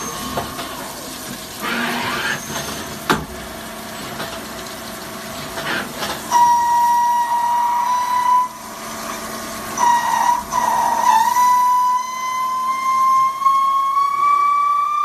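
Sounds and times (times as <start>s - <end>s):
lathe cutting whine: 1.6s - 2.6s, 5.7s - 15.0s.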